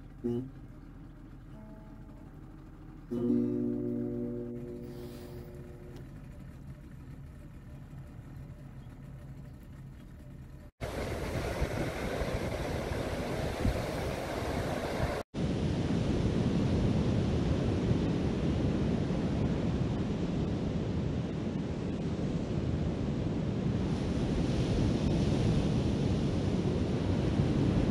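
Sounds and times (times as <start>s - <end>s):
ocean surf washing onto beach: 10.8s - 27.9s
wind buffeting microphone: 10.8s - 27.9s.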